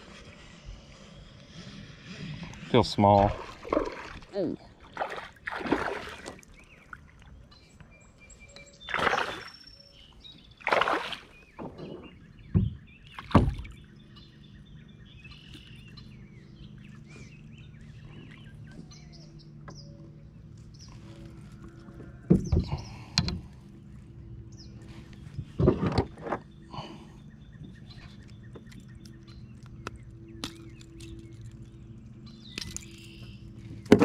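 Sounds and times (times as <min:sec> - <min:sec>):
birds calling: 0:00.0 - 0:34.0
fish splashing: 0:03.4 - 0:06.5, 0:10.6 - 0:11.3.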